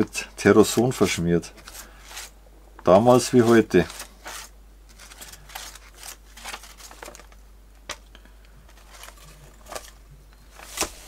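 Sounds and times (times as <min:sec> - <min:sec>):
magazine pages rustling: 0:00.6 - 0:08.0, 0:08.7 - 0:11.0.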